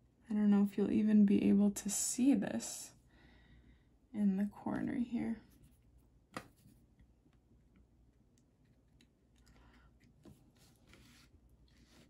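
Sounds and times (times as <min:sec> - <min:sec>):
soft brushing sounds: 0:05.4 - 0:06.9, 0:10.2 - 0:12.0.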